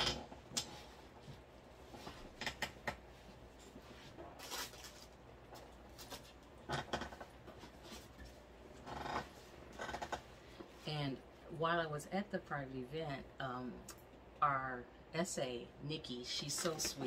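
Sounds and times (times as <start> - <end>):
objects rustling: 3.6 - 6.4.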